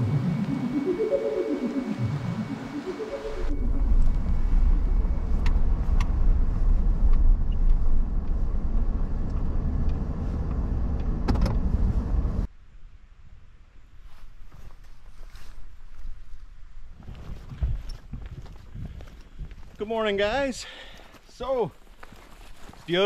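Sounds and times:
engine and tyre rumble: 3.6s - 12.5s.

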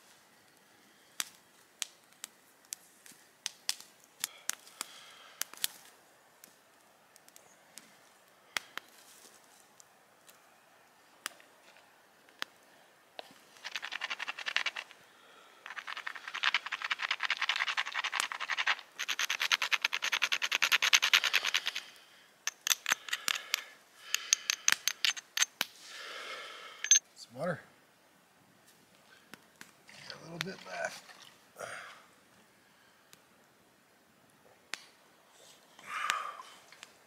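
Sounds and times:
campfire popping: 0.5s - 9.0s, 12.2s - 19.0s, 28.7s - 32.5s, 34.6s - 35.1s, 35.8s - 37.0s
gloved hands rubbing together: 13.6s - 15.0s, 15.7s - 21.9s.

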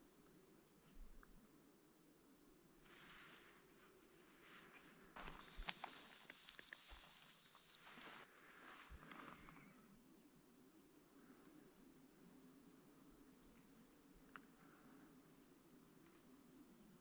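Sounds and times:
faint thin broken whistle: 5.3s - 8.0s
loud high decoy whistle: 5.3s - 8.0s.

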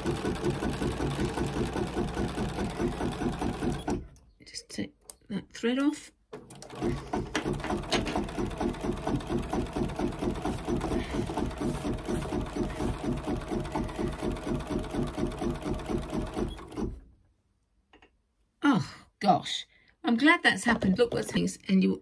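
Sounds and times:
embroidery machine stitching: 0.0s - 4.1s, 6.4s - 17.1s.

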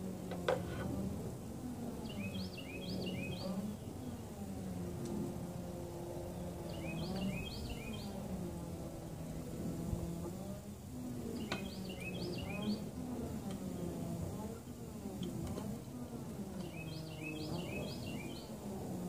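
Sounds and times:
low outdoor hum: 0.0s - 19.0s
songbird chirping: 2.0s - 5.1s, 5.9s - 8.5s, 11.3s - 12.9s, 16.5s - 18.6s.

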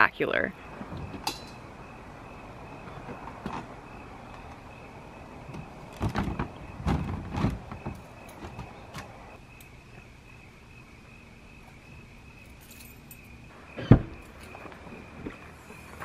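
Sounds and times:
knocks and clunks: 0.7s - 1.7s, 2.8s - 4.7s, 5.4s - 9.4s, 13.8s - 15.4s.

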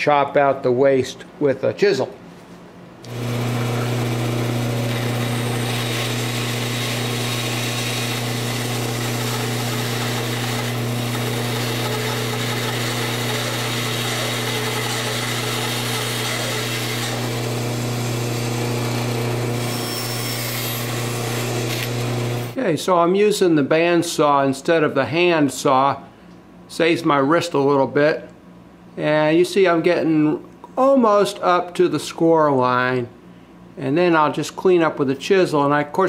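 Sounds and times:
band saw cutting wood: 3.1s - 22.6s.

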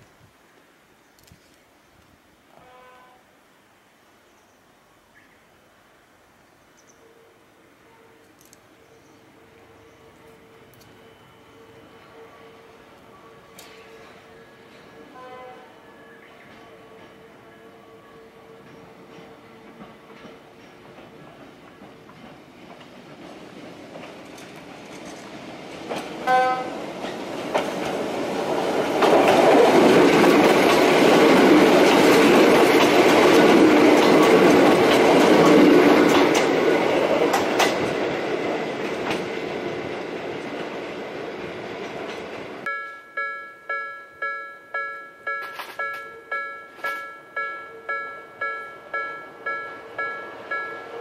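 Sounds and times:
train passing with wheel noise: 0.0s - 51.0s
train horn blast: 2.5s - 3.4s, 7.0s - 19.8s, 26.2s - 26.8s
level-crossing warning bell: 7.1s - 20.3s, 42.6s - 51.0s.

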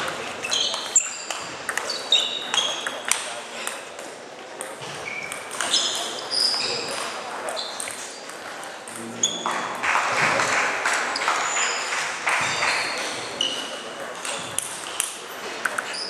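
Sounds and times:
table tennis balls clicking: 0.0s - 16.0s.

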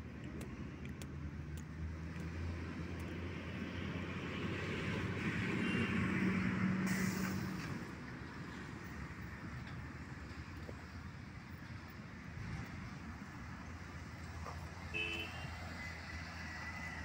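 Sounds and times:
brief hiss: 6.8s - 7.8s.

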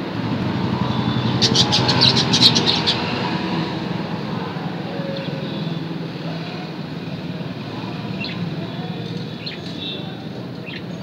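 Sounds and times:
budgerigars chirping: 1.2s - 3.2s.

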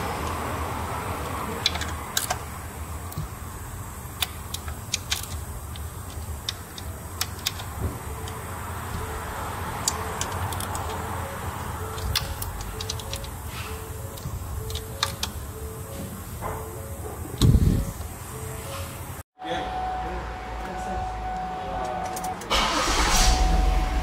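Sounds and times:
steady low hum: 0.0s - 24.0s
ratchet clicking: 3.0s - 9.2s, 9.8s - 15.6s.

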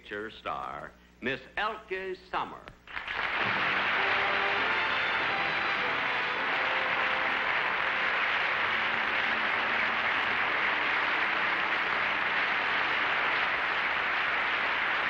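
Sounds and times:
studio audience applauding: 2.9s - 15.0s.

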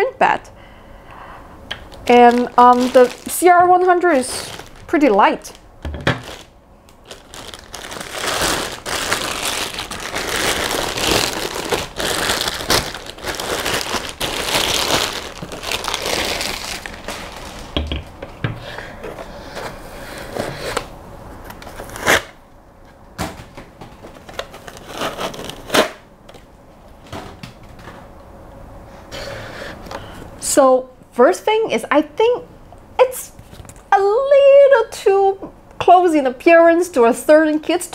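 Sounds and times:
plastic bag crinkling: 1.8s - 17.8s, 24.2s - 25.8s.

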